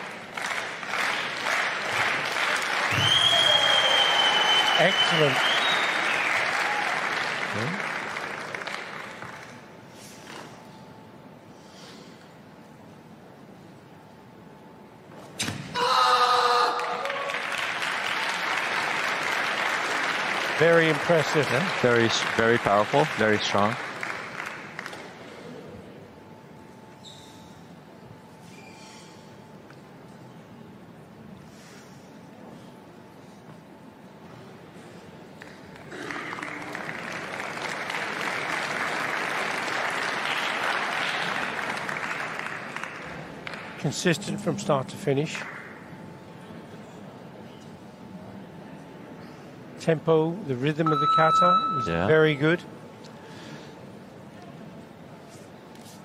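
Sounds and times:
crowd applause: 0.0s - 9.6s, 16.7s - 25.3s, 35.4s - 43.8s
loud kiai shout: 15.7s - 17.3s.

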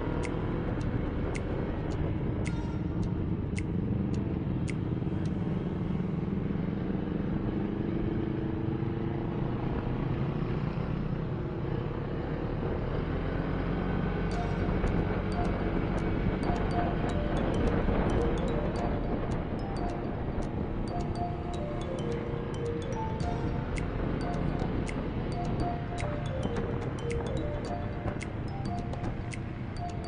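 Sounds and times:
light ticking: 0.0s - 6.2s, 14.2s - 30.0s.

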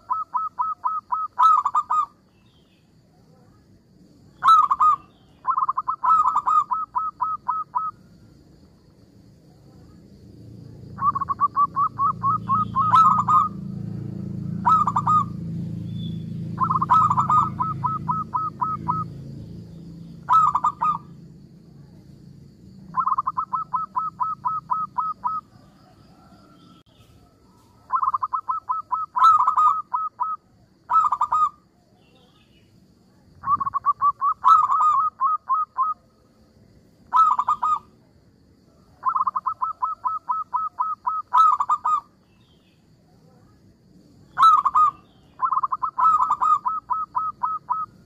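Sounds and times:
dove cooing: 0.0s - 2.2s, 4.4s - 8.0s, 10.9s - 15.8s, 16.4s - 19.3s, 20.2s - 21.2s, 22.9s - 31.6s, 33.4s - 36.0s, 37.1s - 37.9s, 38.9s - 42.1s, 44.4s - 48.0s.

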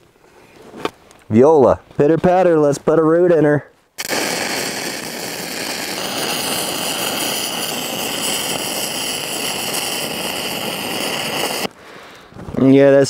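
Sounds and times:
welding arc crackling hiss: 4.0s - 11.8s.

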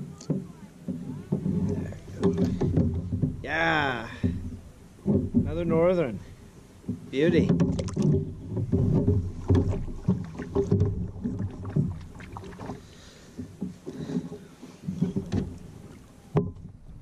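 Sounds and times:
knocks on plastic kayak hull: 0.3s - 6.2s, 6.8s - 12.8s.

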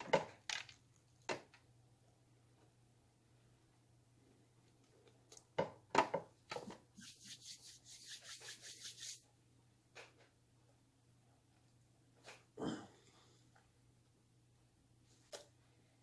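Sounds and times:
quick scratchy rubbing strokes: 6.9s - 9.2s.

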